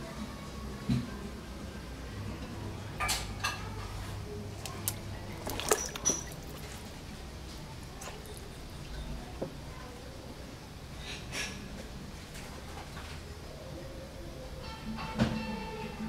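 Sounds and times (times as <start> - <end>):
turtle claws scrabbling on plastic: 4.6 - 7.0.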